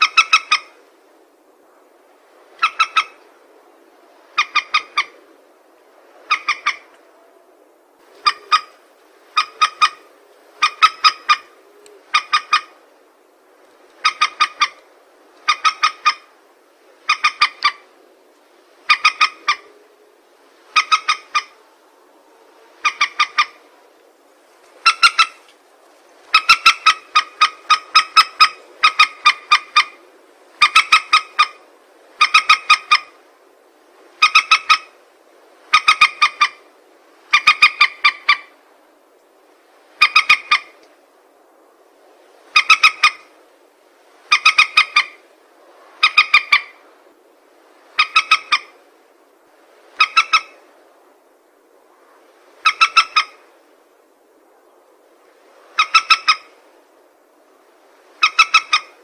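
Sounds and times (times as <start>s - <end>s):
recorded bird call: 0.0s - 0.8s, 2.5s - 3.2s, 4.2s - 5.3s, 6.2s - 7.5s, 8.1s - 12.8s, 14.0s - 16.4s, 17.0s - 17.9s, 18.8s - 23.8s, 24.8s - 25.5s, 26.3s - 33.2s, 34.2s - 35.0s, 35.7s - 38.6s, 39.9s - 40.9s, 42.5s - 43.3s, 44.2s - 45.3s, 45.9s - 46.8s, 47.9s - 48.8s, 49.9s - 50.6s, 52.6s - 53.5s, 55.6s - 56.6s, 58.2s - 59.0s.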